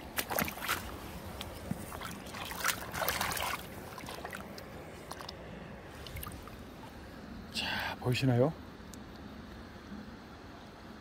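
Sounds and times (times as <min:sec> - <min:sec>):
water splashing and sloshing: 0:00.0 - 0:07.1.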